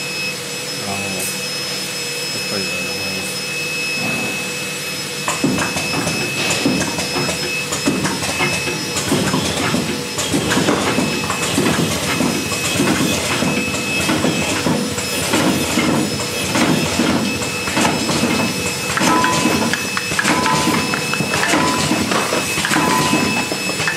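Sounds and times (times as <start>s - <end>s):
high steady tone: 0.9s - 7.7s, 17.2s - 23.9s
rhythmic machine clatter: 4.0s - 23.9s.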